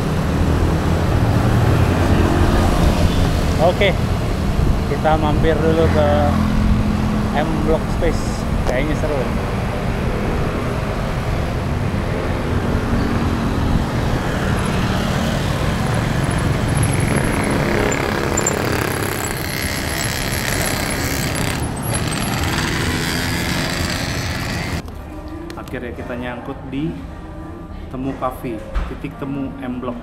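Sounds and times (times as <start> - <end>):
motorcycle and car engines passing: 0.0 - 24.8
wind rushing over microphone: 0.3 - 5.8.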